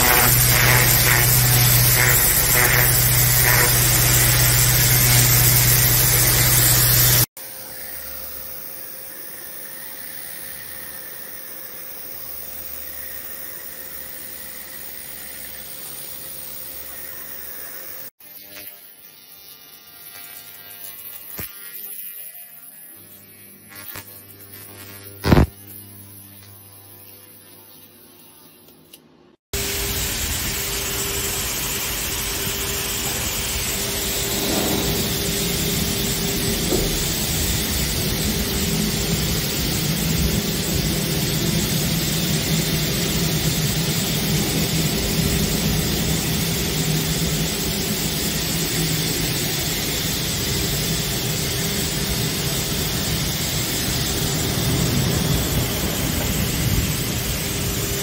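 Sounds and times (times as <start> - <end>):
water jet spraying on glass: 0.0 - 7.3
pressure washer pump hum: 0.0 - 18.0, 29.6 - 58.0
sharp snap: 25.2 - 25.5.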